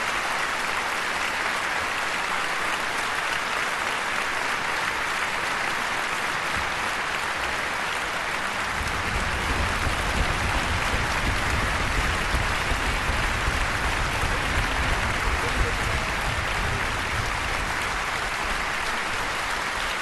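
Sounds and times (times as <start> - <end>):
audience applauding: 0.0 - 20.0
low rumble: 8.6 - 18.0.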